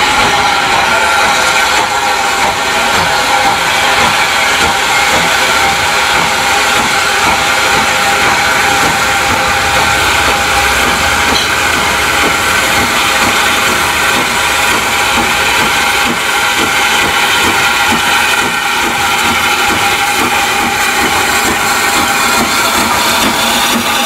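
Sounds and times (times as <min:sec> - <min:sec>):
locomotive exhaust beats: 0:00.0 - 0:24.0
steam hissing: 0:00.0 - 0:24.0.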